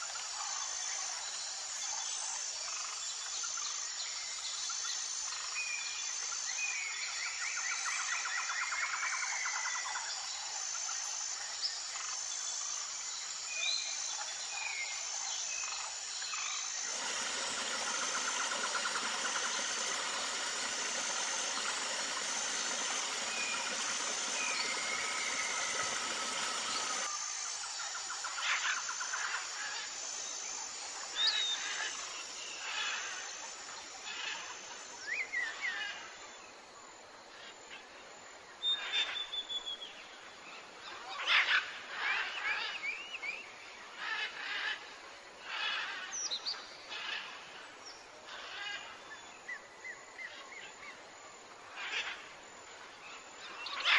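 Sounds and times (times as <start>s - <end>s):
outdoor background hiss: 0.0s - 53.9s
birds chirping and trilling: 15.6s - 27.1s.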